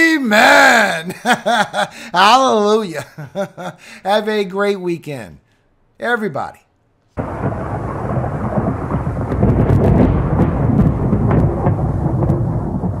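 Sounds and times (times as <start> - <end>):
thunder cracks: 7.2 - 13.0
thunder rumbling: 7.2 - 13.0.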